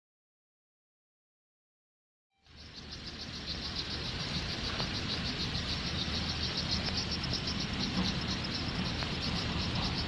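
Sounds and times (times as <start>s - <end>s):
constant low rumble: 2.4s - 10.0s
insects chirring: 2.4s - 10.0s.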